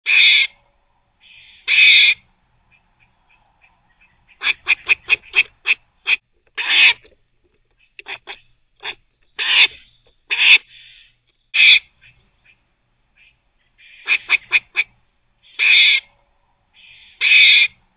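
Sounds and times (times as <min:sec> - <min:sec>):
squirrel barking: 0:00.1 - 0:07.1, 0:07.8 - 0:17.8.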